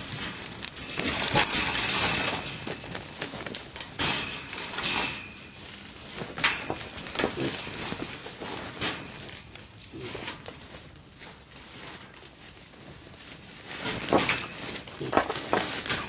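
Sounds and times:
animals knocking against wire mesh: 0.0 - 10.4.

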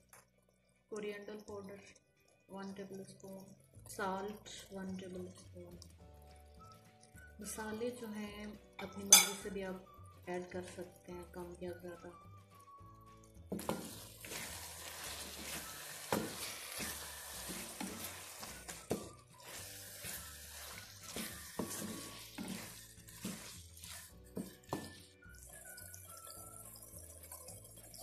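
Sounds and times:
background music: 0.0 - 28.0
vegetables sizzling in oil: 11.5 - 28.0
spatula scraping and knocking pan: 13.5 - 25.1.

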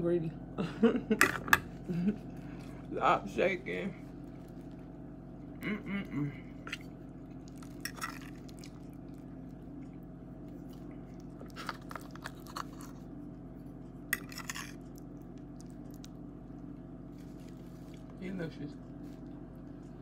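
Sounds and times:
steady low hum: 0.0 - 20.0
person chewing food: 6.4 - 18.2.

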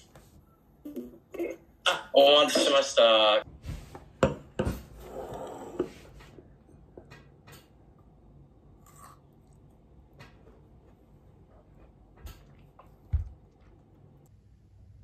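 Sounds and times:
chewing grapes: 11.6 - 14.3.

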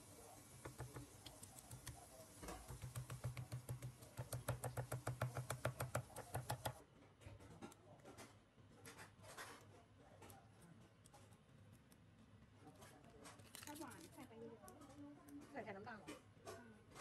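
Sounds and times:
stone pestle pounding in mortar: 2.5 - 6.8.

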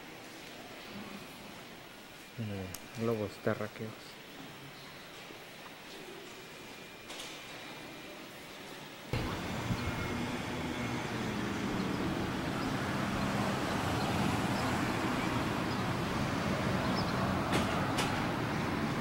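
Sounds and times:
steady outdoor rumble: 9.1 - 19.0.

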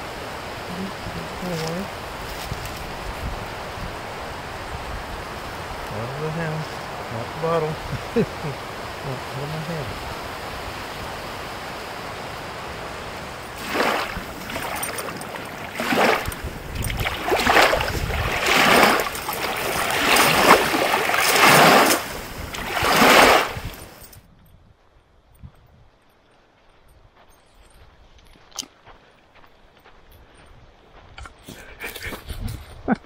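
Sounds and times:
lake waves lapping on shore: 0.0 - 24.2.

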